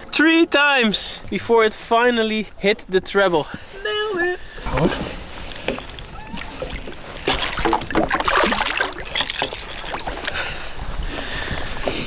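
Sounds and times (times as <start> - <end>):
water splashing beside boat: 4.4 - 11.9.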